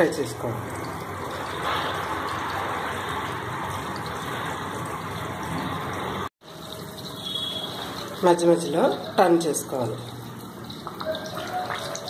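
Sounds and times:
food sizzling in oil: 0.6s - 12.0s.

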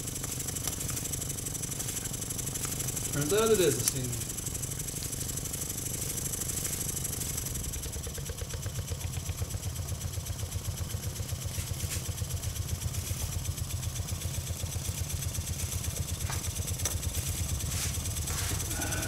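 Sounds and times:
steam hiss: 17.6s - 19.0s.

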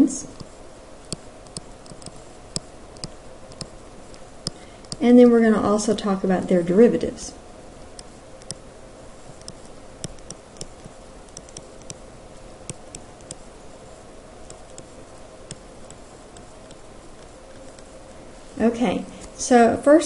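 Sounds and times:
faint steady hum: 0.0s - 20.0s
stylus tapping on tablet screen: 0.4s - 5.0s, 8.0s - 8.6s, 9.2s - 12.0s, 12.6s - 13.5s, 14.4s - 17.9s.

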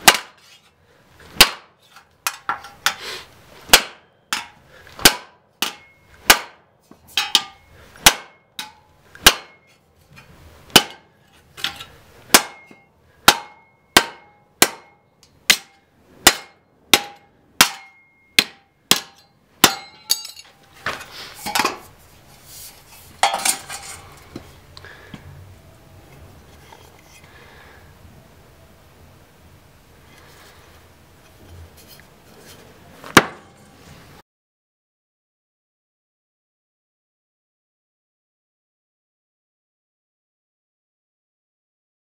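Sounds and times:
tomahawk chopping into steel sheet: 0.0s - 0.7s, 1.4s - 3.0s, 3.7s - 9.7s, 10.7s - 21.9s, 33.1s - 33.6s
scraping and handling sounds: 0.4s - 3.3s, 11.2s - 12.0s, 19.9s - 24.6s, 26.1s - 27.3s, 30.1s - 34.2s.

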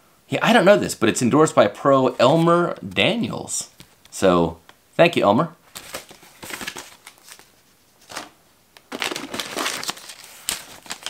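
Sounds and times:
plastic packages crinkling: 8.1s - 11.0s.

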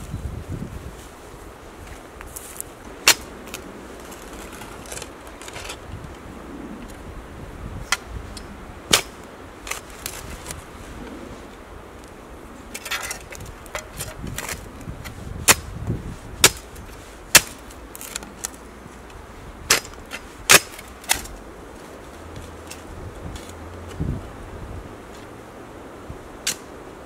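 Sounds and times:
soil scraping and rustling: 0.0s - 25.4s
spade chopping into soil: 8.9s - 9.8s, 16.4s - 16.7s, 17.3s - 18.2s, 19.7s - 21.3s.

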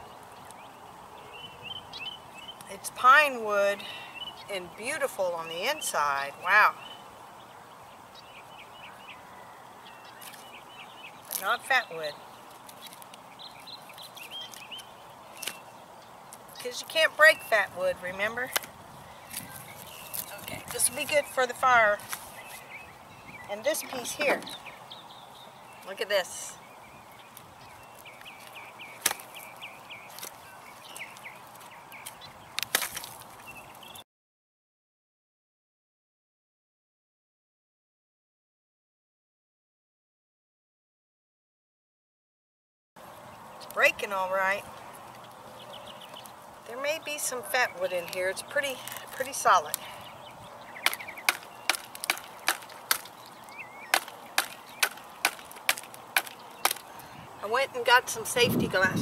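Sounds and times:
wood cracking and snapping: 28.4s - 29.4s, 32.6s - 33.3s, 50.8s - 56.9s.

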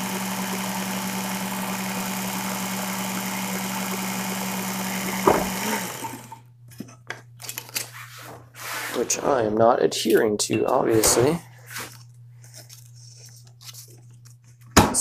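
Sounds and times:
belt sharpener motor hum: 0.0s - 6.4s.

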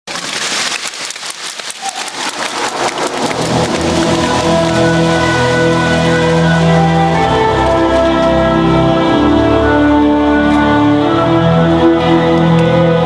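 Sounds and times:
rain-like hiss and crackle: 0.1s - 6.9s
held musical chords: 2.0s - 13.0s.

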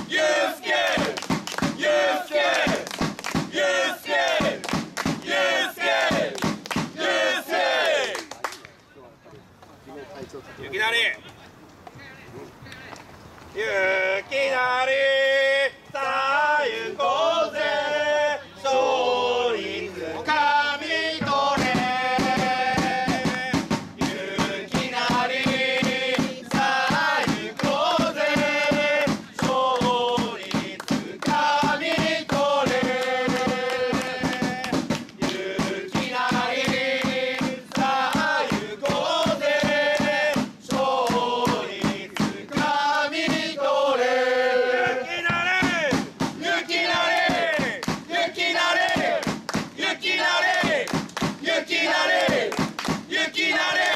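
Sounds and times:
drum beating steady rhythm: 0.0s - 7.7s, 21.1s - 53.9s
football supporters chanting: 0.0s - 8.2s, 13.6s - 53.9s.

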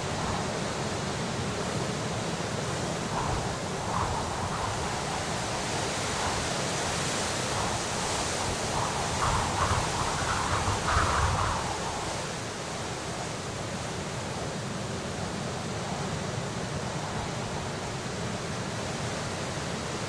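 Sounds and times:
strong wind rushing: 0.0s - 13.4s.

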